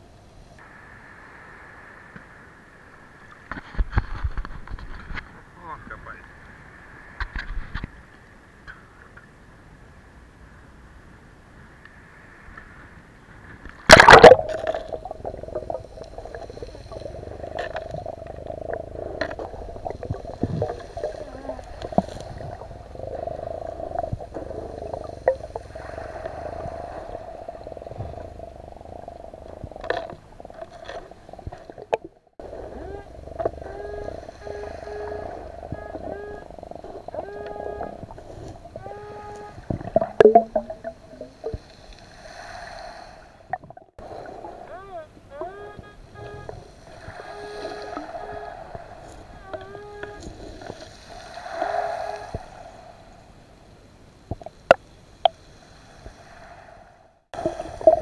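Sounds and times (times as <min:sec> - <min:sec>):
loud splash: 0:13.9 - 0:17.0
muffled underwater hum: 0:13.9 - 0:41.7, 0:44.0 - 0:50.8.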